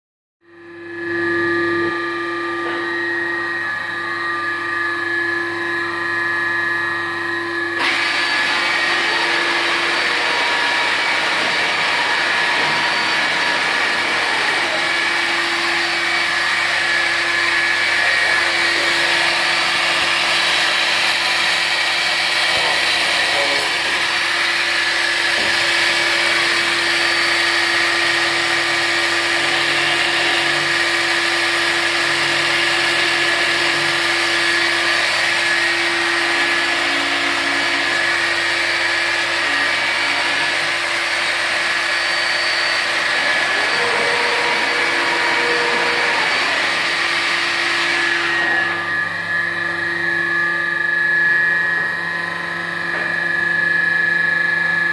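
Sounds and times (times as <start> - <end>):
wood router spindle whine: 0.4 - 54.9.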